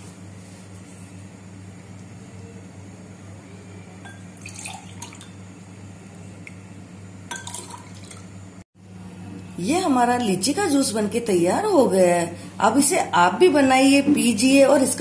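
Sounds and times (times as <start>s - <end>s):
juice pouring into a glass: 4.2s - 6.2s, 7.3s - 8.4s.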